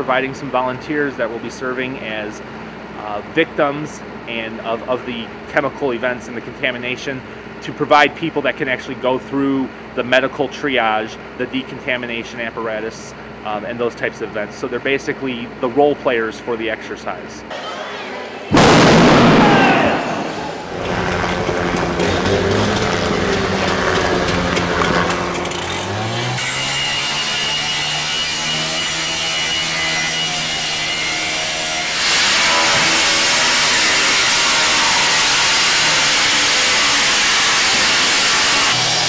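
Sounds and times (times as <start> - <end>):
cut-off saw cutting steel: 20.2 - 39.0.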